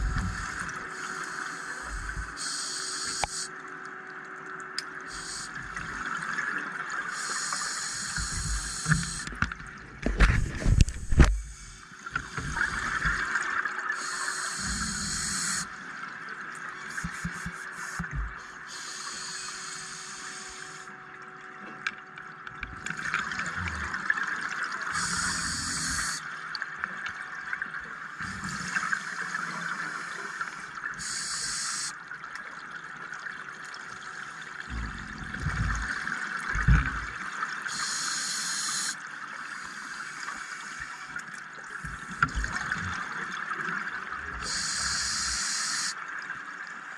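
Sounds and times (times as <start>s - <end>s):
steady underwater hiss: 0.0s - 3.7s, 4.8s - 9.6s, 10.2s - 21.2s, 22.8s - 32.2s, 33.4s - 46.9s
diver breathing through regulator: 14.0s - 15.7s
bubbling of exhaled air: 34.7s - 37.3s.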